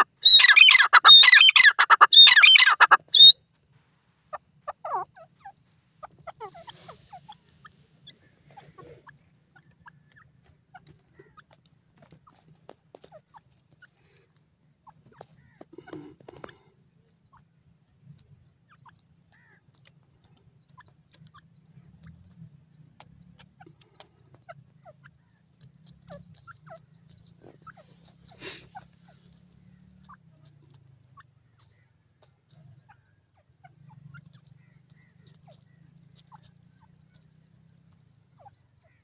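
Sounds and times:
quiet ticks: 9.6 - 16.8, 18.0 - 27.4.

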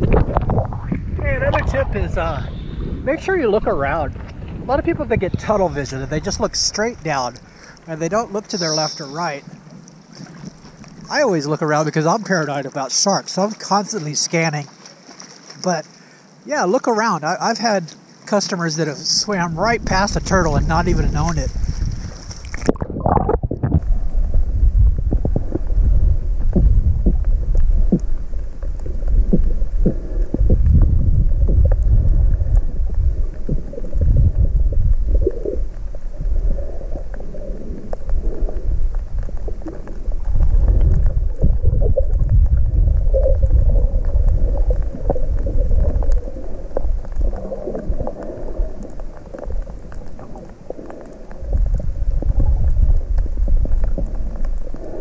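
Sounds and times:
underwater rumble and sloshing: 0.0 - 16.4, 18.6 - 55.0
faint clicks: 35.0 - 55.0.

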